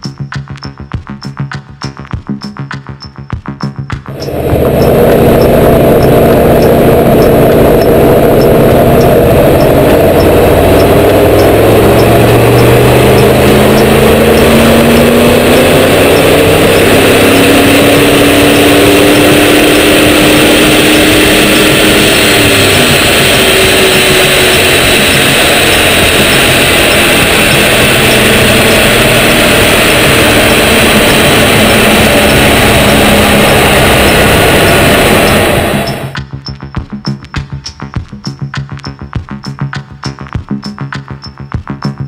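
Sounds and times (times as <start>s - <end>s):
steady loud rush: 4.1s - 36.2s
diesel engine under full load: 4.1s - 36.3s.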